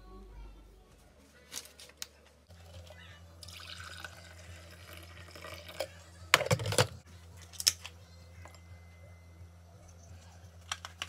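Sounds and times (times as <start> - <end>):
coffee pouring into a mug: 2.6 - 6.6.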